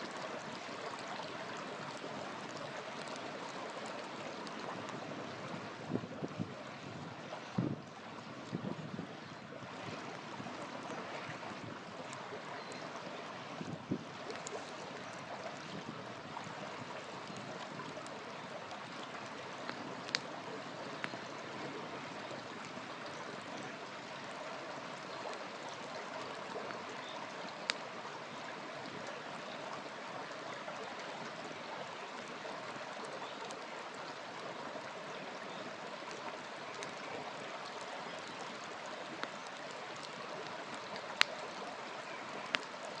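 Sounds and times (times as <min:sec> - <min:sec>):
campfire hissing: 0:09.7 - 0:43.0
burning wood popping and cracking: 0:16.9 - 0:21.3, 0:39.2 - 0:41.4.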